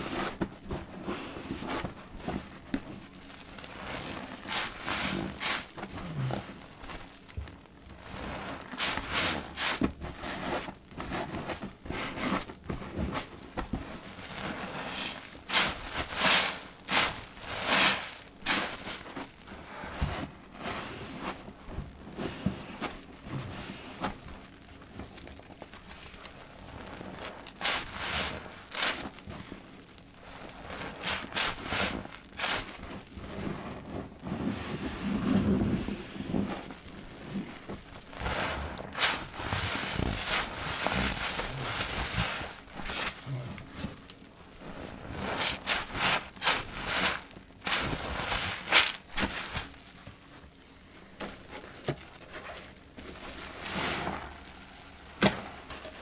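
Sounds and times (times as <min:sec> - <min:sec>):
sponge squelching in suds: 0:00.0 - 0:07.2, 0:07.9 - 0:25.2, 0:25.9 - 0:50.4, 0:51.0 - 0:56.0
foam hissing and crackling: 0:00.0 - 0:56.0.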